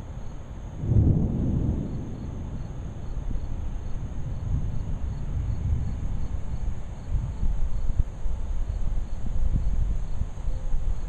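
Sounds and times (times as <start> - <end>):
crickets chirping: 0.0 - 11.0
distant thunder rumbling: 0.6 - 8.0.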